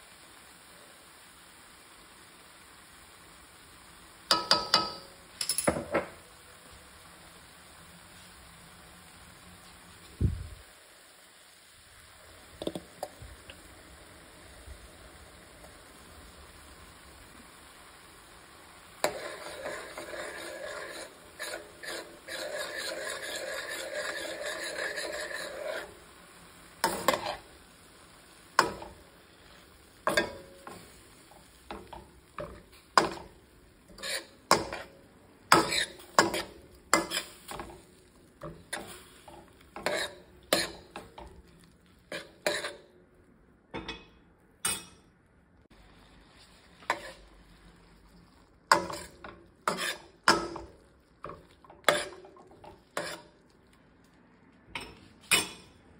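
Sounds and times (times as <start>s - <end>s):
vegetables sizzling in a pan: 0.0s - 55.9s
spoon clicking and scraping pan: 4.3s - 5.8s, 19.0s - 25.9s, 26.8s - 27.5s, 28.6s - 42.8s, 43.8s - 45.0s, 46.9s - 47.2s, 48.7s - 53.4s, 54.7s - 55.7s.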